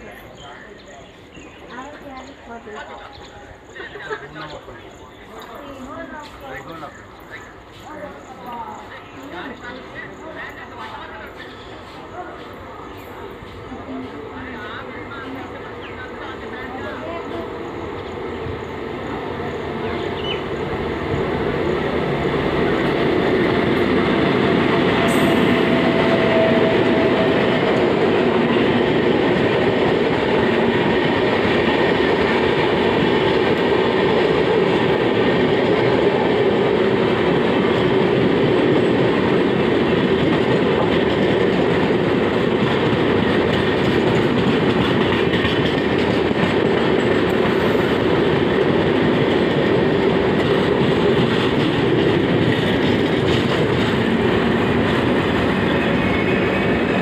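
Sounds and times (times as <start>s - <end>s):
train wheels on rails: 0.0s - 57.0s
clickety-clack over rail joints: 22.2s - 57.0s.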